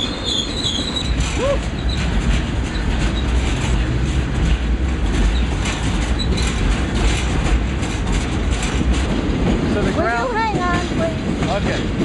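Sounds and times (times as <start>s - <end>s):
freight train cars rumbling: 0.0s - 12.0s
wheels clattering on rails: 0.0s - 12.0s.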